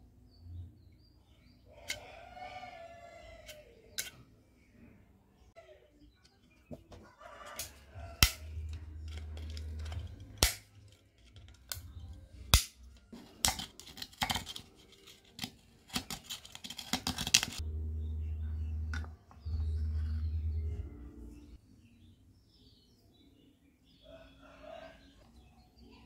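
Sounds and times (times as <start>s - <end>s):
pliers clicking and scraping metal: 3.4s - 4.2s, 7.4s - 17.6s
low hum: 17.6s - 21.6s.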